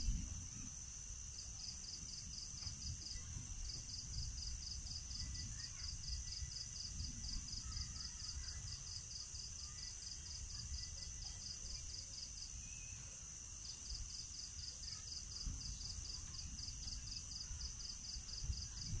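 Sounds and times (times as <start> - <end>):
night insects chirping: 0.0 - 19.0.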